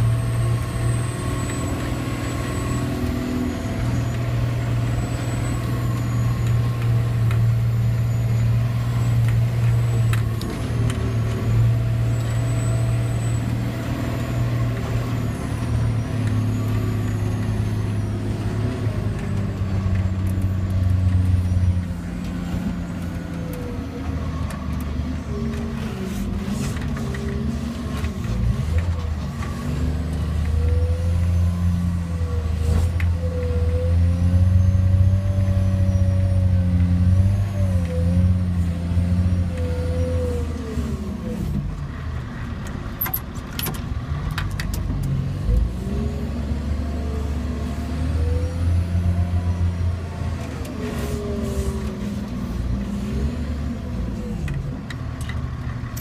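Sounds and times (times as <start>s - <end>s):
diesel truck engine under load: 0.0s - 56.0s.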